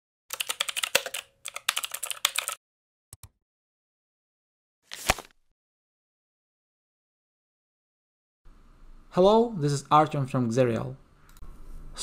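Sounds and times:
keyboard typing clicks: 0.3 - 2.6.

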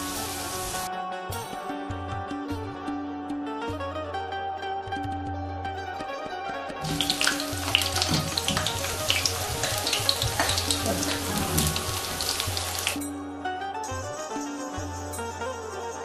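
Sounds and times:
chicken deep-frying in oil: 0.0 - 0.9, 6.8 - 13.0.

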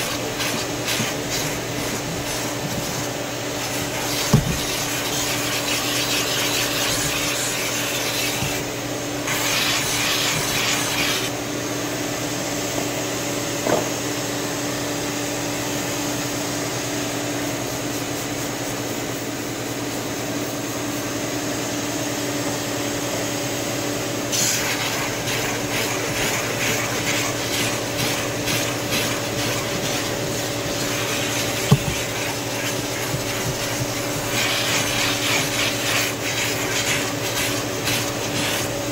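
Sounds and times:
brush scrubbing cloth seat: 0.0 - 11.3, 24.4 - 38.9
steam cleaner hissing: 0.0 - 11.3, 24.3 - 38.9.

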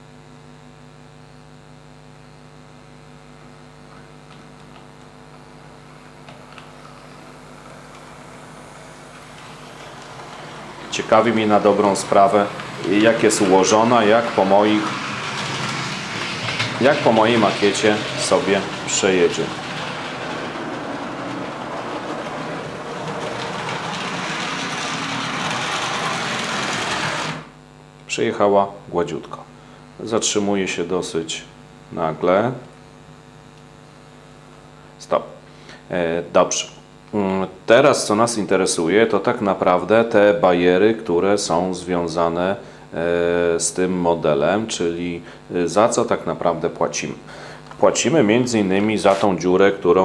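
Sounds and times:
low electrical hum: 0.0 - 50.0
electric motor whir: 5.3 - 27.6
wheels rattling on rails: 6.4 - 27.5.

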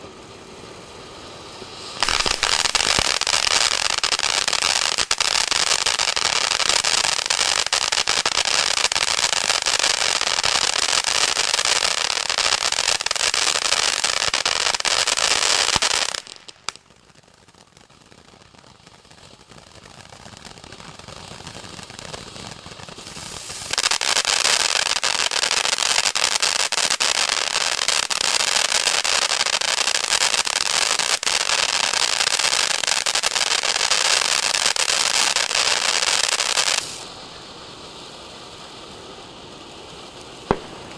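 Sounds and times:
firework fountain crackling: 0.0 - 40.9
firework hiss: 0.0 - 40.9
firework pop: 2.0 - 3.1.

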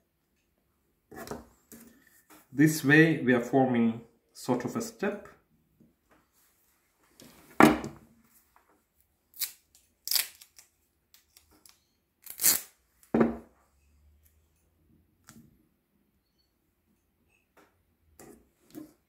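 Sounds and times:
cloth tape ripping: 9.3 - 10.7, 11.6 - 12.8.

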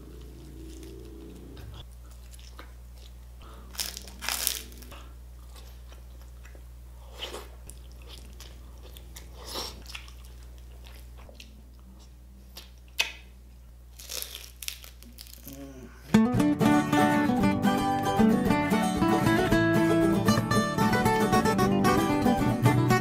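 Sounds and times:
steady low hum: 0.0 - 23.0
crunchy bites and chewing: 0.2 - 13.2, 13.9 - 15.8.

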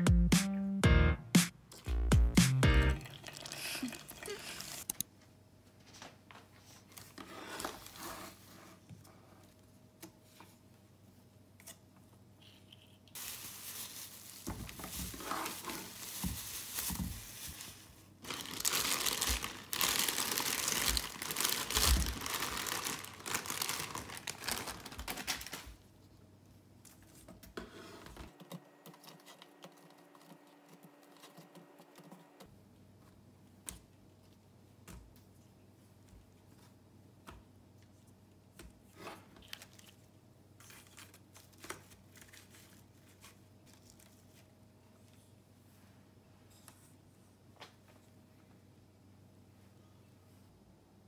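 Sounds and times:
plastic mesh bag crinkling: 13.2 - 25.8.

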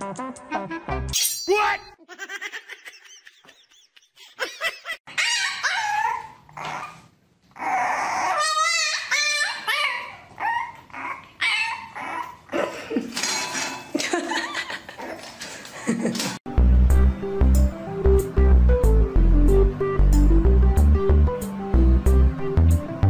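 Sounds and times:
dogs whining yipping and barking: 5.0 - 12.5.

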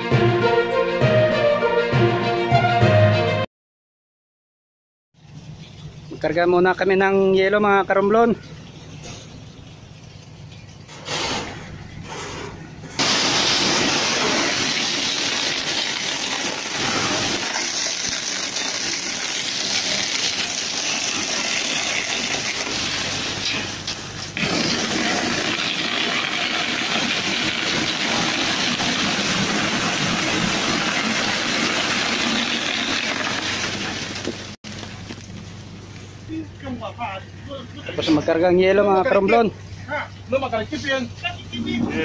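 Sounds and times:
ice pouring down a chute: 13.0 - 34.6.

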